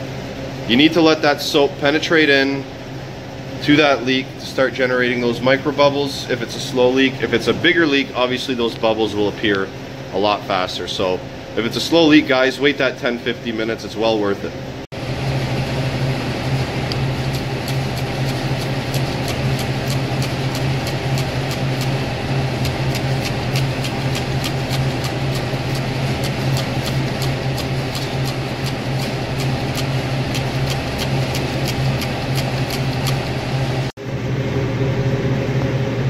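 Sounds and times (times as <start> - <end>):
low machinery hum: 0.0 - 36.0
trigger sprayer squirting: 16.9 - 33.4.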